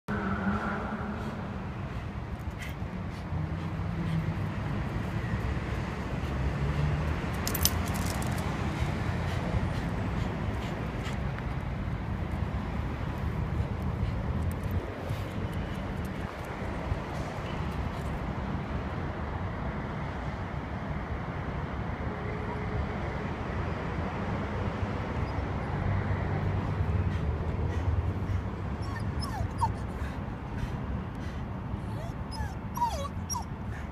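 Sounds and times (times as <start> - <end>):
dog whining: 28.8 - 30.2, 31.8 - 33.8.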